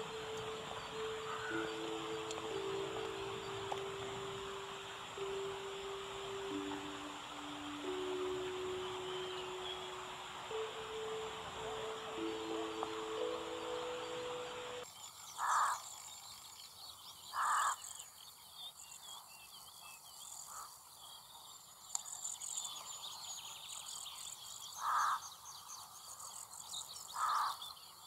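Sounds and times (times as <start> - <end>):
rook cawing: 0.0 - 14.6, 15.4 - 15.8, 17.4 - 17.8, 24.8 - 25.2, 27.2 - 27.6
songbirds chirping: 0.0 - 28.0.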